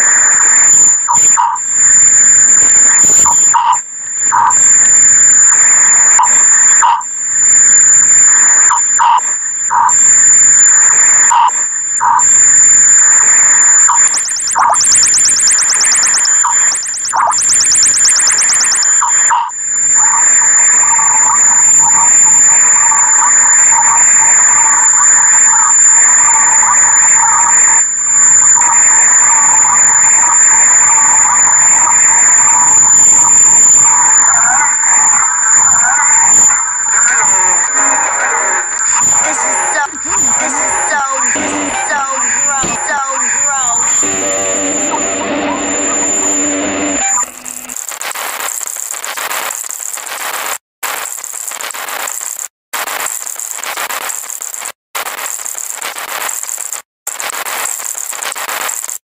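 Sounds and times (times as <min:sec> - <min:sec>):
high-pitched whine: 0:00.0 - 0:52.3
distorted mashup audio: 0:00.0 - 0:59.0
short blips: 0:05.7 - 0:59.0
harsh noise: 0:12.1 - 0:59.0
harsh noise wash: 0:35.1 - 0:48.0
shrill high tone: 0:35.6 - 0:47.8.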